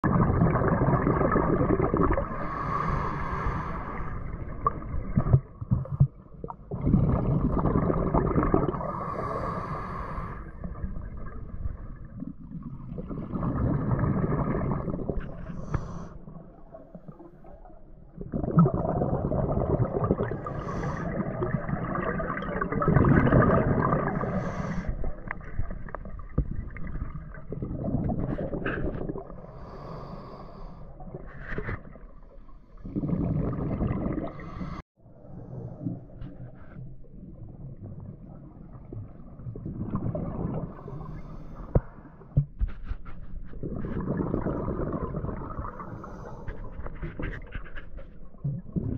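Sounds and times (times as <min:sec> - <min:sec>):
exhaust bubbles: 0:00.0 - 0:02.4, 0:04.4 - 0:08.9, 0:18.2 - 0:24.2
scuba regulator breathing: 0:02.2 - 0:04.4, 0:08.8 - 0:10.6, 0:15.3 - 0:16.5, 0:20.4 - 0:21.4, 0:24.0 - 0:25.3, 0:28.8 - 0:31.7, 0:34.2 - 0:34.9, 0:40.7 - 0:43.2, 0:45.6 - 0:48.0.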